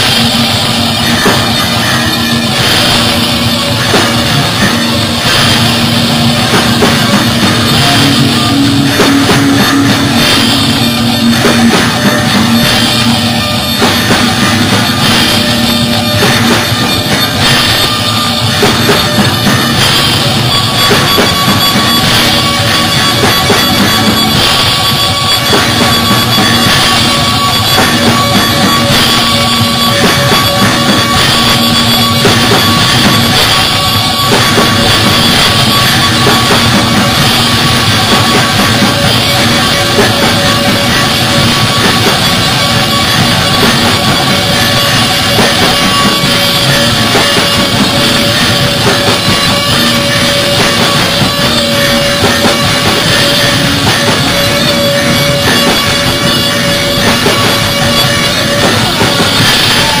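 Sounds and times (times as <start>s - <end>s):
rock band playing live: 0.0s - 60.0s.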